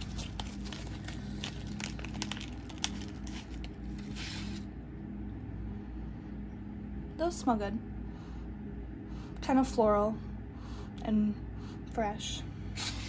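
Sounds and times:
plastic bag crinkling: 0.0s - 4.6s.

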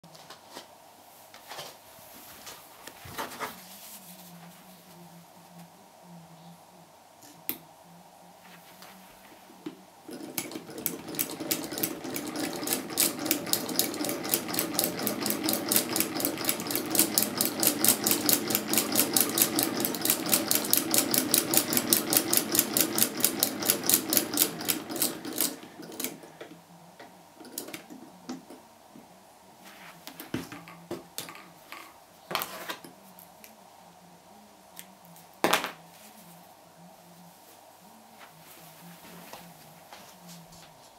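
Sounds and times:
sewing machine clicking: 10.1s - 26.5s, 27.4s - 28.0s.

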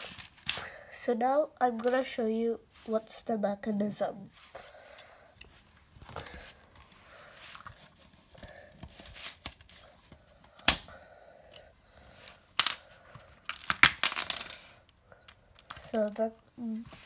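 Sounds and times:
plastic bricks snapping apart: 10.5s - 10.9s, 12.6s - 12.8s, 13.5s - 14.6s.

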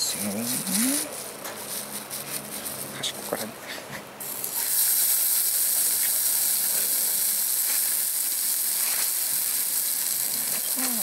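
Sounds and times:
steak sizzling in a skillet: 4.2s - 11.0s.

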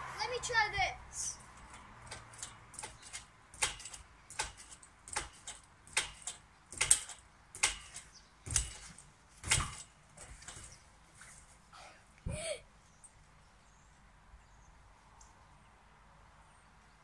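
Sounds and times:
trampoline bounces and springs: 0.0s - 12.7s.

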